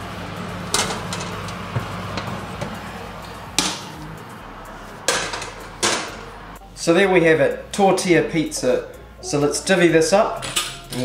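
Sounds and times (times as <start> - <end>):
low hum: 0.0 - 6.8
metal tray scraping on rack: 0.6 - 4.2, 4.8 - 6.3.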